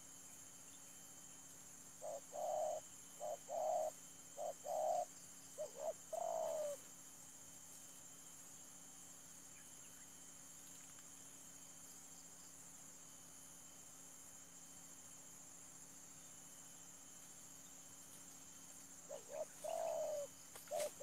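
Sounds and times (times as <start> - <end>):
high insect drone: 0.0 - 21.0
dove cooing: 2.0 - 6.8, 19.1 - 21.0.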